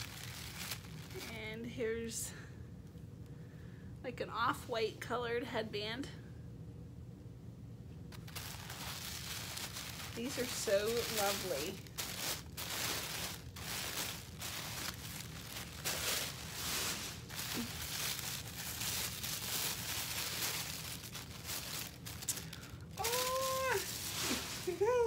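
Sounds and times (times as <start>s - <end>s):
tissue paper rustling and crinkling: 0.0s - 1.5s, 8.1s - 25.0s.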